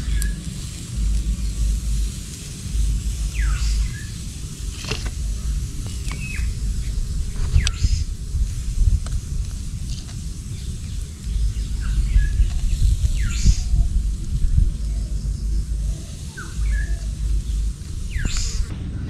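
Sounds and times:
birds chirping: 0.0 - 19.0
low rumble: 0.0 - 19.0.

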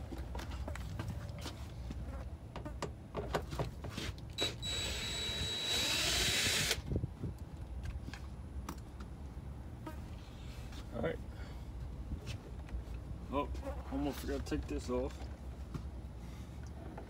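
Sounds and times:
cordless drill whining: 4.4 - 6.8.

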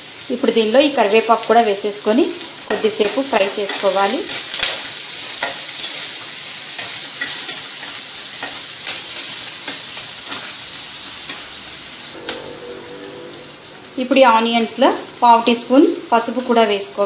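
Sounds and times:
food sizzling in hot oil: 0.0 - 17.0
metal spatula scraping a pan: 12.1 - 14.4.

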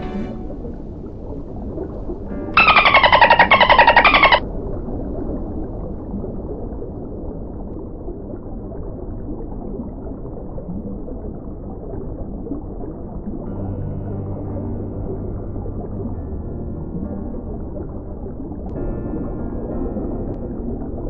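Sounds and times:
low underwater rumble: 0.0 - 21.0
dolphin squawking clicks: 2.6 - 4.4.

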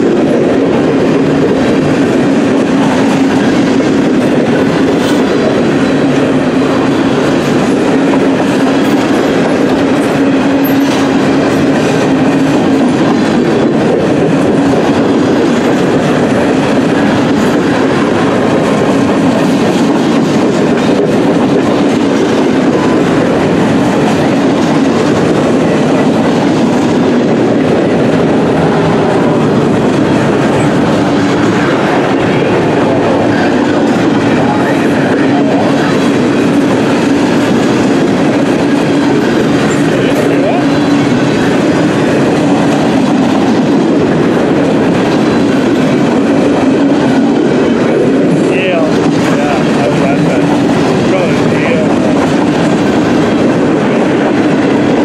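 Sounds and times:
freight train wheels clattering on rails: 0.0 - 55.0.

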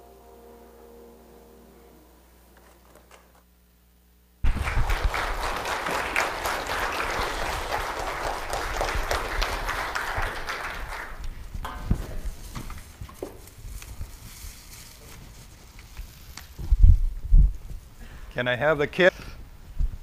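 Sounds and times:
congregation clapping: 4.4 - 12.4.

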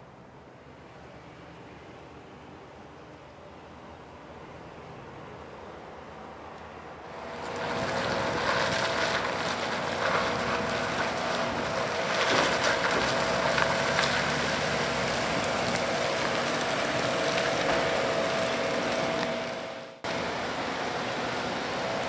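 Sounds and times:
vehicle engine humming: 3.8 - 22.0.

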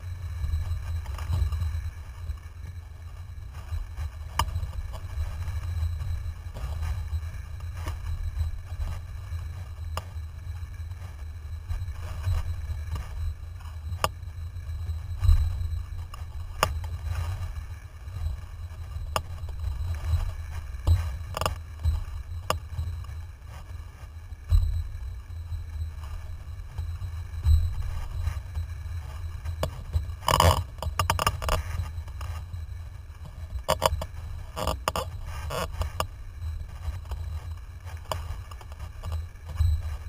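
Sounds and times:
wind rumble on microphone: 0.0 - 40.0.

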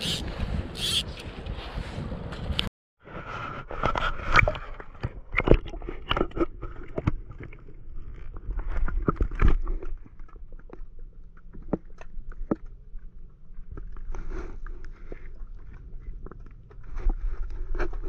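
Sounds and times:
muffled underwater clicks and knocks: 3.7 - 18.0.

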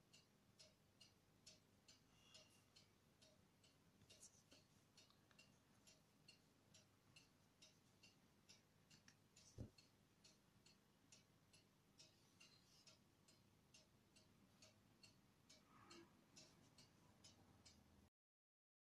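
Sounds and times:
faint regular ticking: 0.0 - 18.1.

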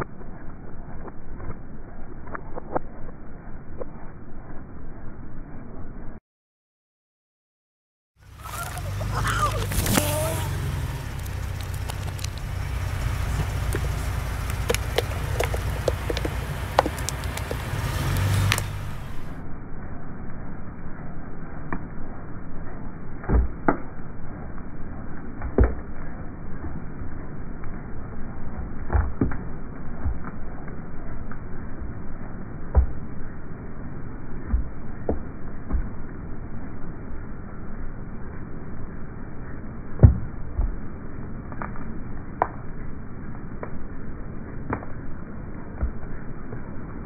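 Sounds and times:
low steady rumble: 0.0 - 6.2, 8.2 - 47.0
object cracking under a tyre: 8.2 - 19.4, 25.1 - 26.8, 28.6 - 31.9, 39.9 - 46.6
plastic cone creaking and cracking: 9.5 - 19.4.

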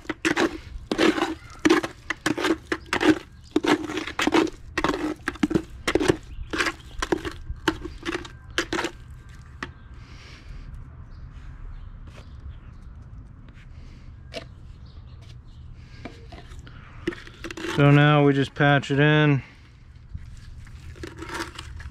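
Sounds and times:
trowel scraping wet concrete: 0.0 - 9.5, 17.1 - 19.0, 20.5 - 21.9.

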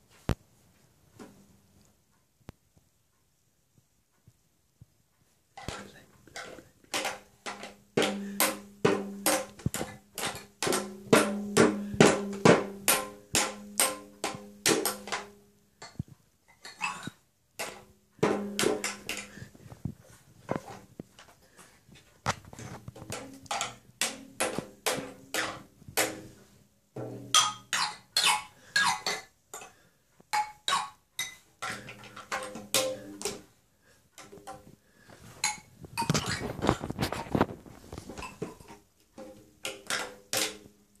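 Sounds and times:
mallet hitting toy drum: 6.9 - 15.3, 17.6 - 19.3, 27.0 - 28.5.

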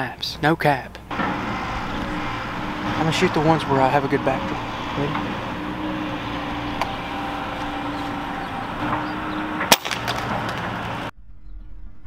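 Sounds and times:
steady background hum: 0.0 - 11.1.

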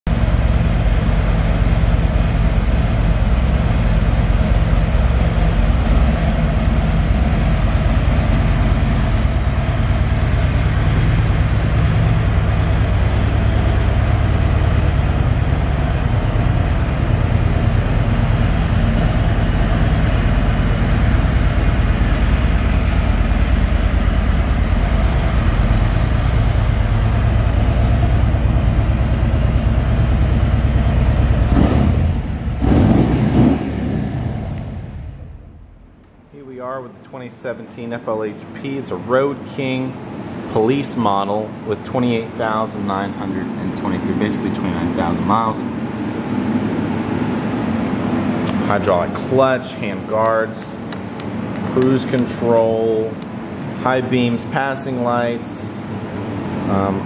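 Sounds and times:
motorcycle engine idling: 0.1 - 32.6.

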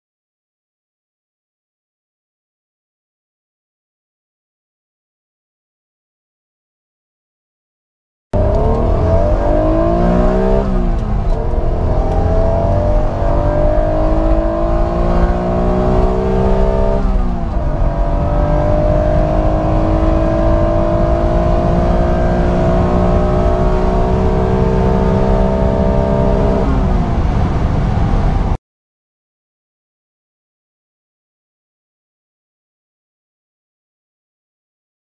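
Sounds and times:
car engine at full throttle: 8.4 - 28.6.

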